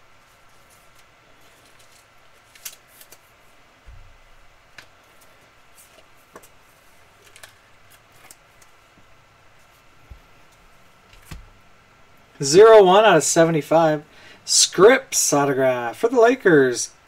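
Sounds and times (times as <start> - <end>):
trading cards being handled: 0.2 - 3.4, 4.7 - 8.8.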